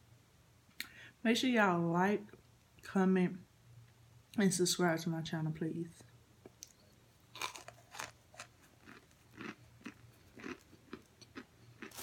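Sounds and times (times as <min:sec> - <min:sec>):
crunchy chewing: 0:06.6 - 0:12.0.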